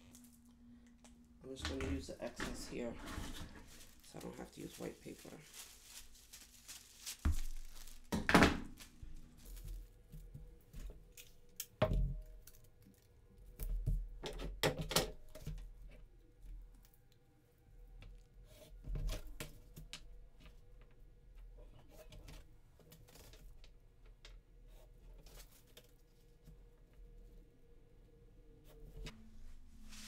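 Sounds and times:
tissue paper rustling: 2.2s - 10.2s, 29.3s - 30.0s.

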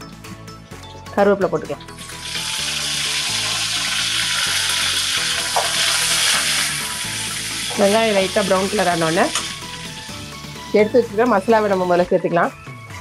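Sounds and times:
food frying in oil sizzling: 1.9s - 10.6s.

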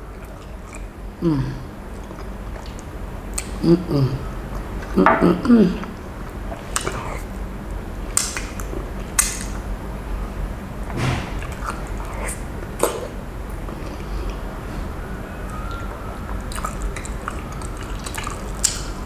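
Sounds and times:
wet eating clicks and smacks: 8.1s - 9.6s, 16.5s - 19.0s.

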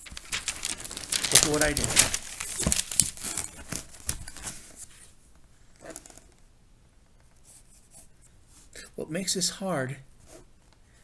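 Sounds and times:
paper rustling: 0.0s - 4.9s.

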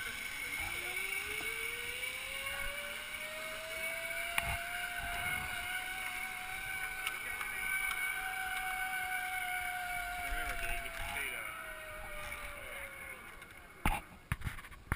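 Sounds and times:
zip line pulleys whining on cable: 0.0s - 14.2s.

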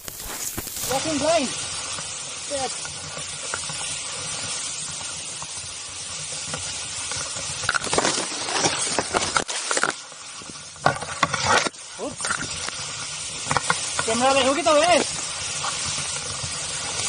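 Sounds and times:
brush rustling against camera: 0.0s - 1.2s
steady hiss: 0.0s - 17.0s.

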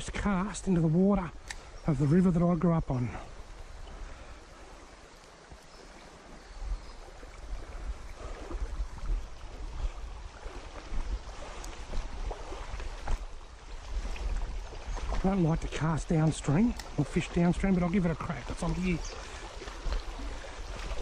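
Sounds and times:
river water running over stones: 0.0s - 21.0s
faint clicks: 1.4s - 1.7s
wind buffeting microphone: 2.8s - 21.0s.

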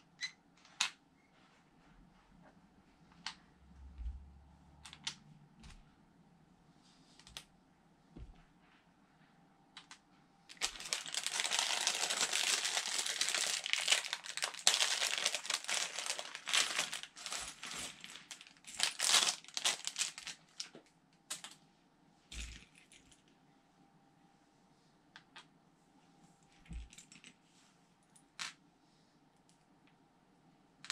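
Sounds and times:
plastic bag crinkling: 10.5s - 20.7s.

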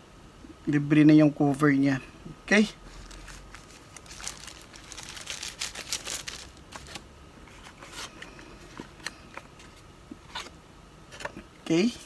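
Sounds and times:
plastic packaging crinkling: 2.9s - 9.8s.

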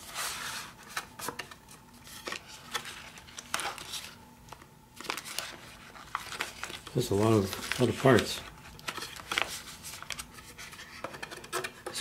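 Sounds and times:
plastic bag crinkling: 5.0s - 10.3s.

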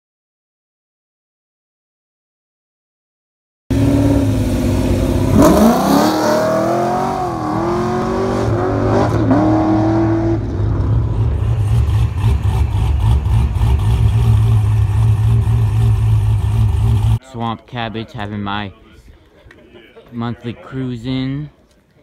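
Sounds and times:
car engine revving accelerating: 3.7s - 17.2s
car engine rumbling past: 3.7s - 17.2s.

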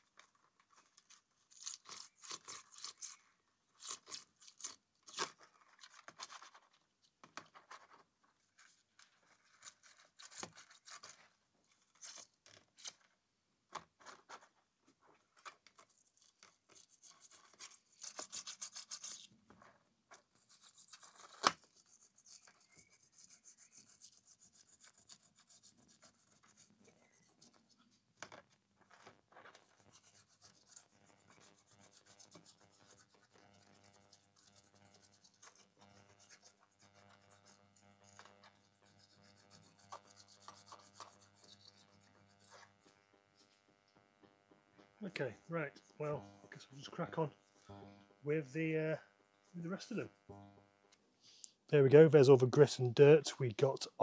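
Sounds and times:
brush scrubbing metal: 15.8s - 19.3s, 20.1s - 28.0s, 29.4s - 43.6s.

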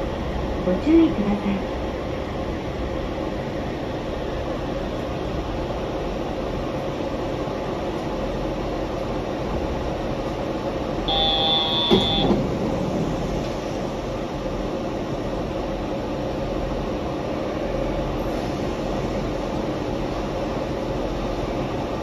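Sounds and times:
train rolling and motor noise: 0.0s - 22.0s
short high electronic beep: 11.1s - 12.3s.

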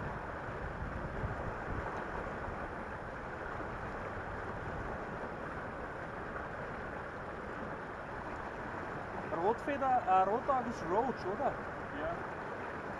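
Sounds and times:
wind rumble on microphone: 0.0s - 9.4s
river water rushing: 0.0s - 12.9s.

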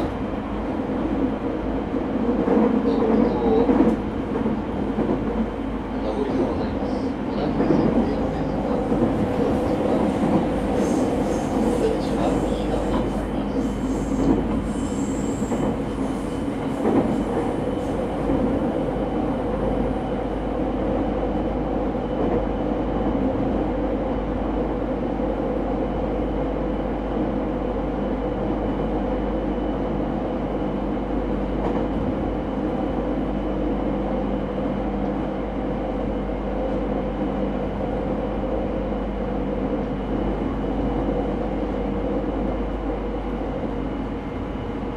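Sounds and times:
train wheels rumbling: 0.0s - 23.3s.

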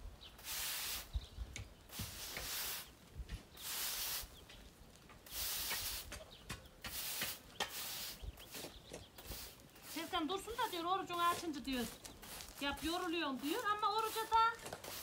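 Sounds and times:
push broom sweeping dirt: 0.4s - 1.2s, 1.9s - 15.0s.

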